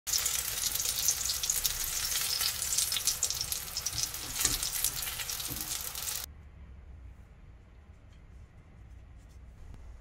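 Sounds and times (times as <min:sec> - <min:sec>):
vegetables sizzling in hot oil: 0:00.1 - 0:06.3.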